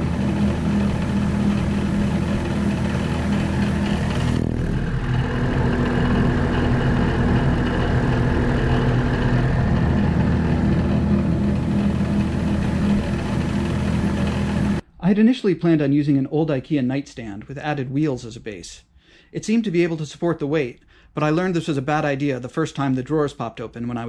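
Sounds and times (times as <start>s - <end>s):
drill press droning: 0.0s - 14.8s.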